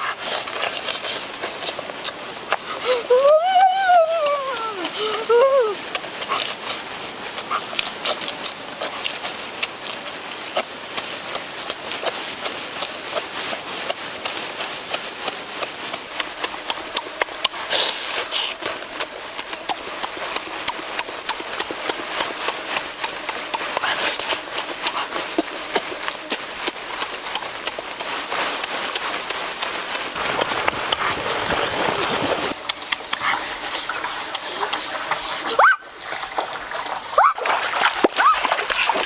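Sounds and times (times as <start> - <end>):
wet chewing and slurping: 0.0 - 39.0
clicking mouth sounds: 0.2 - 6.8, 32.6 - 35.3.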